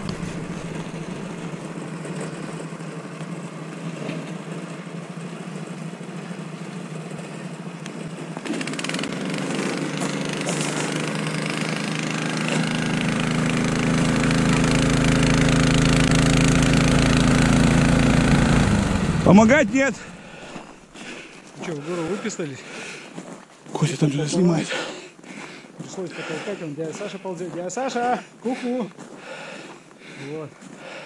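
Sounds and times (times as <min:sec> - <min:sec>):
small engine running under load: 0:00.0 - 0:22.2.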